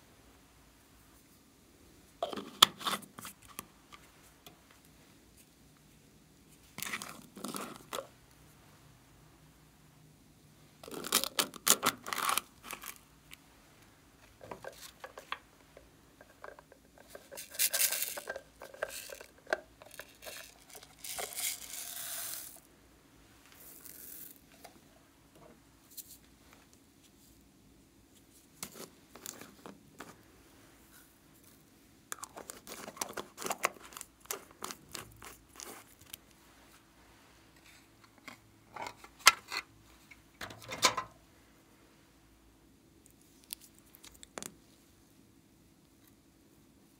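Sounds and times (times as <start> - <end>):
plastic caps clicking and twisting: 10.8 - 13.0, 14.3 - 22.6, 32.1 - 36.2
beads and glitter pouring: 19.9 - 22.7.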